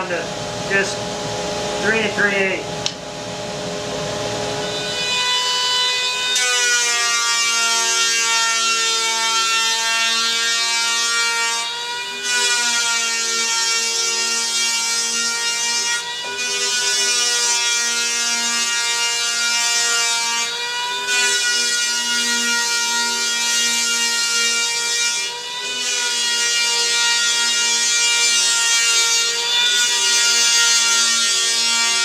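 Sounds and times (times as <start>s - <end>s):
dust extraction vacuum running: 0.0s - 5.2s
electric planer whining: 3.6s - 15.4s, 16.0s - 19.2s, 20.0s - 32.0s.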